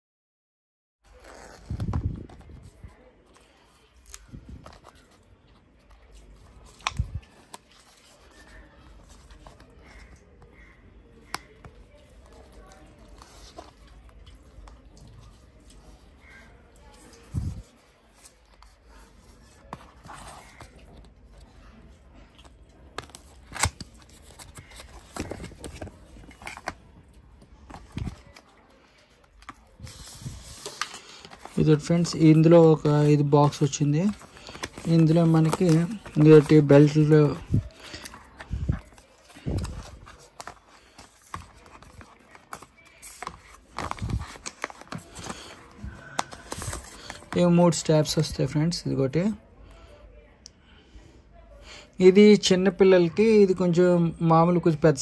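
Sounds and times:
cardboard packaging being handled: 22.4s - 47.9s.

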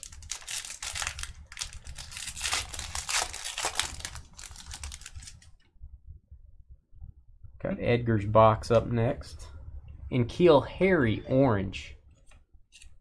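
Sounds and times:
foil wrapper crinkling and tearing: 0.0s - 5.5s.

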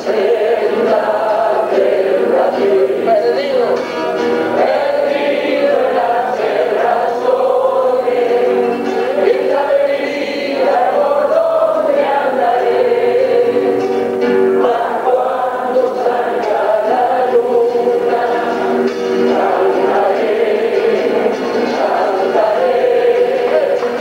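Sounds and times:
person singing: 0.0s - 3.8s, 14.6s - 24.0s
classical guitars playing folk music: 0.0s - 24.0s.

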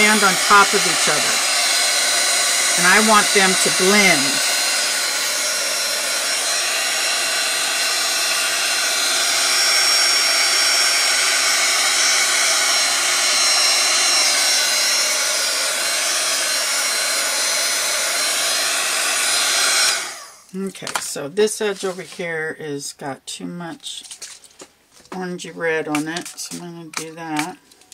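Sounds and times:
hot-air blower running: 0.0s - 20.5s.

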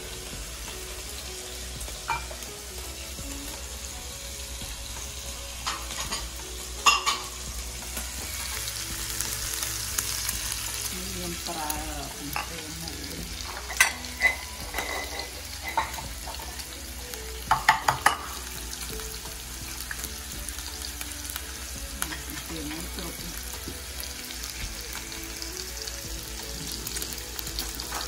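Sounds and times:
meat sizzling in frying pan: 0.0s - 28.0s
ceramic dishes clinking: 2.1s - 2.4s, 5.7s - 7.3s, 13.6s - 16.1s.

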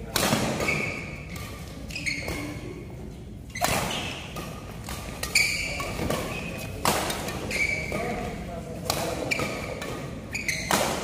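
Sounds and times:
racket striking shuttlecock: 0.1s - 1.7s, 3.6s - 7.4s, 8.8s - 11.0s
shoes squeaking on court floor: 0.4s - 11.0s.

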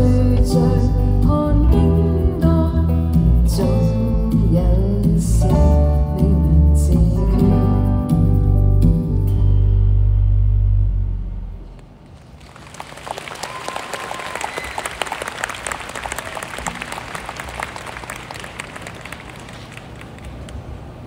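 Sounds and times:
audience applauding: 12.2s - 20.8s
crowd whooping: 12.6s - 19.7s.

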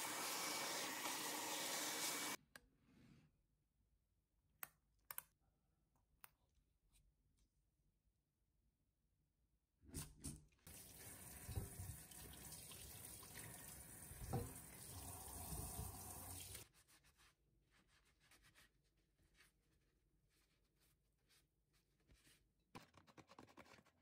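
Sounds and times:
tap water running into sink: 10.7s - 16.6s.

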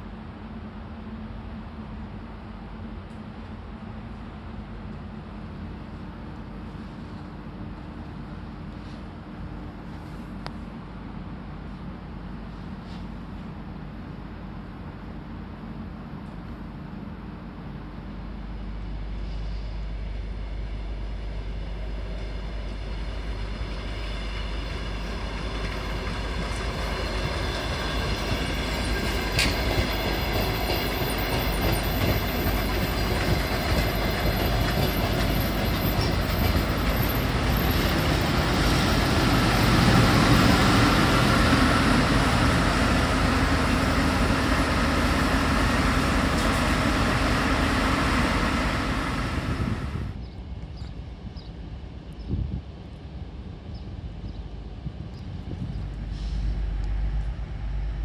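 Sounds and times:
diesel train engine: 0.0s - 50.7s, 52.7s - 58.0s
train wheels on rails: 18.4s - 50.7s.

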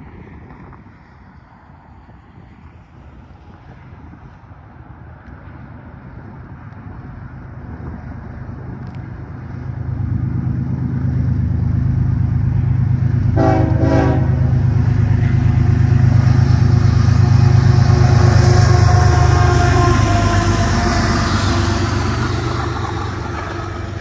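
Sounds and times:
diesel locomotive engine drone: 0.0s - 24.0s
train horn blast: 13.3s - 24.0s.

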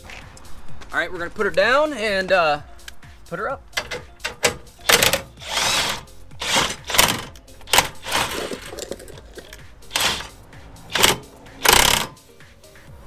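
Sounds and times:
impact driver spinning a screw: 4.9s - 10.3s, 10.9s - 12.2s.

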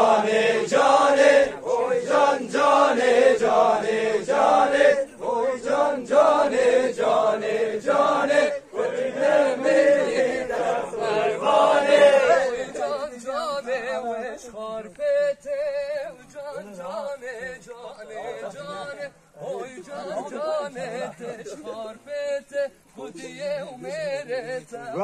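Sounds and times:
men chanting a dance song: 0.0s - 25.0s.

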